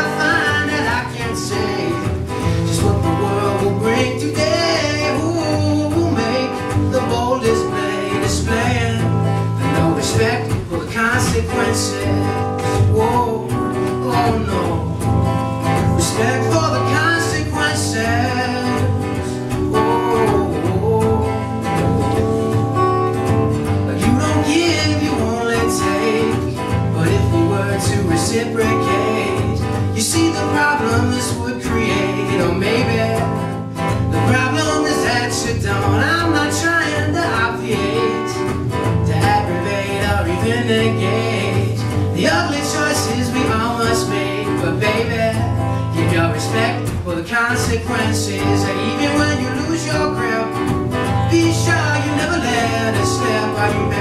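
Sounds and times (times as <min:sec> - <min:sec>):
man singing into microphone: 0:00.0 - 0:22.4, 0:23.9 - 0:54.0
acoustic guitar strummed: 0:00.0 - 0:54.0.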